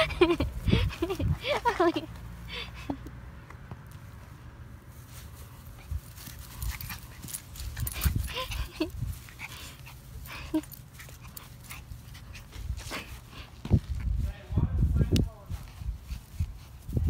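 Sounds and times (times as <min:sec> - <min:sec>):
low microphone rumble: 0:12.7 - 0:17.0.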